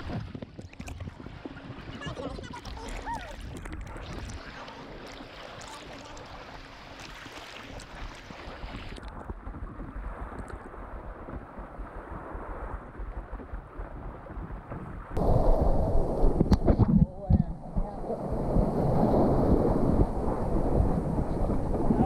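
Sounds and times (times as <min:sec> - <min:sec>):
wind buffeting microphone: 0:00.0 - 0:05.2, 0:07.6 - 0:22.0
water sloshing around board: 0:00.0 - 0:10.7
low rush: 0:15.2 - 0:22.0.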